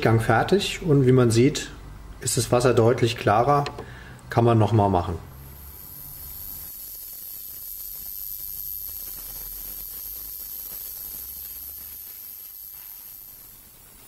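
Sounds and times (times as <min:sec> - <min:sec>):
ultrasonic cleaner whine: 0:00.0 - 0:14.0
hiss of cavitating water: 0:05.4 - 0:14.0.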